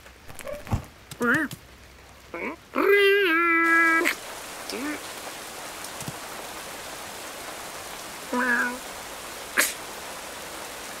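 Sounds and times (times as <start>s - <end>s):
steady rain falling: 0.0s - 11.0s
sharp sneeze: 9.6s - 9.8s.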